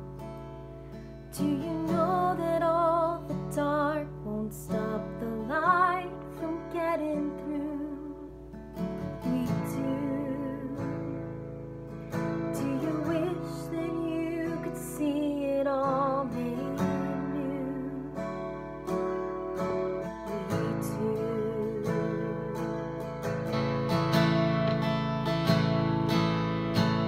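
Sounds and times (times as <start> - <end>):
strummed acoustic guitar: 0.0 - 27.0
woman singing: 1.3 - 11.4, 12.4 - 18.8, 20.1 - 23.0.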